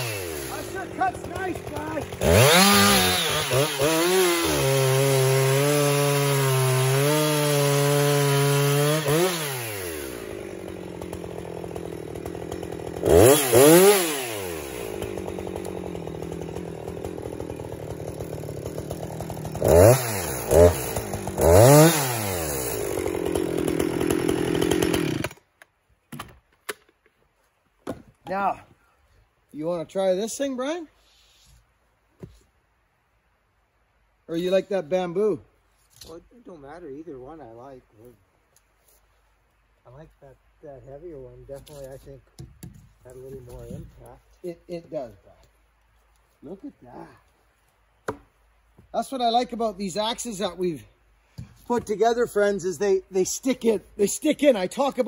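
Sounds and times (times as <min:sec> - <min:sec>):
chainsaw cutting through log: 0:00.0 - 0:25.5.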